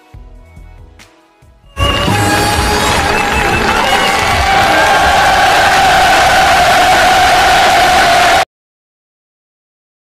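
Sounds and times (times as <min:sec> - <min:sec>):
held high tones: 0:01.7 - 0:07.2
crowd cheering and shouting: 0:01.8 - 0:08.5.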